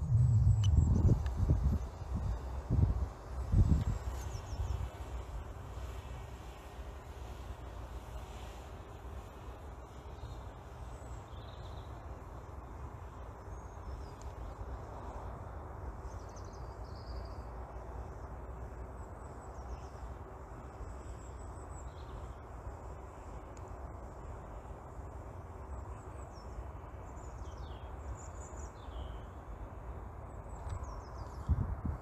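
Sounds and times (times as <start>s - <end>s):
faint bird chirps: 0.0s - 2.5s
outdoor background rumble: 0.0s - 32.0s.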